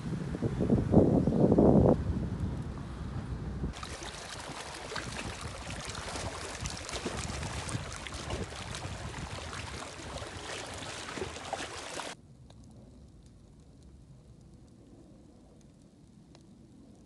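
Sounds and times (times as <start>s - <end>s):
waves lapping on pebbles: 3.7s - 12.2s.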